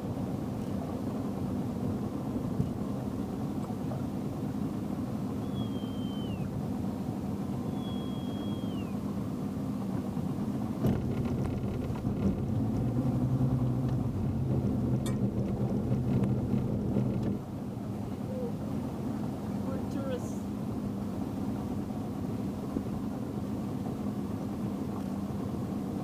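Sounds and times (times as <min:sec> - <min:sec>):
motorboat engine humming: 0:00.0 - 0:26.0
short falling whistles: 0:05.4 - 0:06.5, 0:07.7 - 0:09.0.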